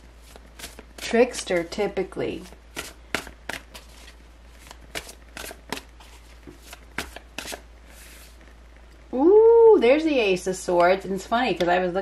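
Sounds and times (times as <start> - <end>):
cards being shuffled: 0.2 - 1.7, 2.4 - 8.5.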